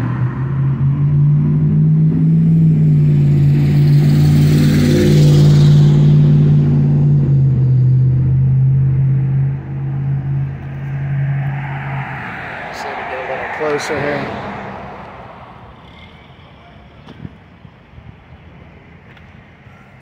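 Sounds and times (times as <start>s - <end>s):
heavy diesel engine humming: 7.0s - 20.0s
rushing noise: 9.1s - 17.0s.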